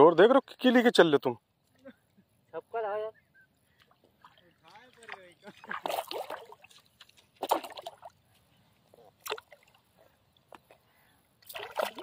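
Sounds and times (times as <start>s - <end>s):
fish thrashing and splashing: 4.0s - 8.2s, 9.1s - 10.0s, 11.4s - 12.0s.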